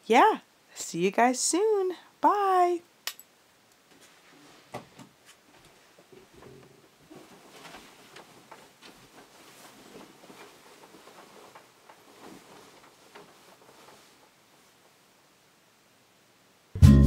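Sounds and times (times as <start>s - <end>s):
bedding rustling: 3.9s - 15.9s.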